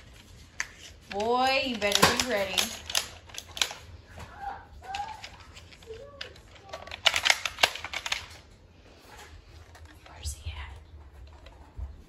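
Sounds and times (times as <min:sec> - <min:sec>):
toy blaster plastic clicks: 0:04.9 - 0:08.4.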